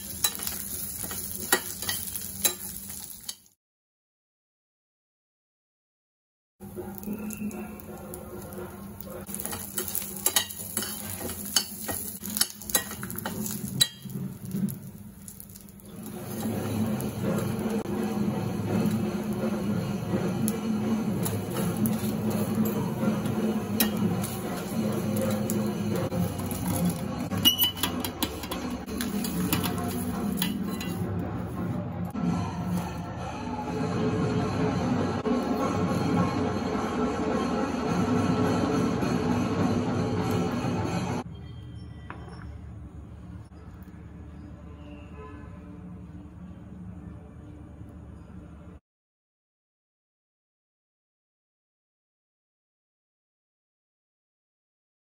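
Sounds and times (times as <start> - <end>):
metal spatula scraping a pan: 0.0 - 3.5, 7.0 - 15.0, 15.9 - 31.8
spices frying in a pan: 0.0 - 3.6, 6.6 - 31.0.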